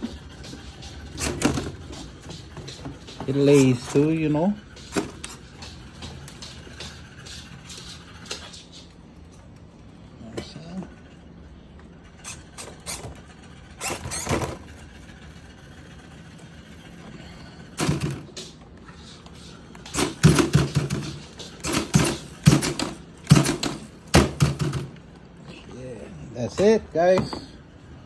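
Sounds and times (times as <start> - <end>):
servos whirring: 12.1 - 15.2.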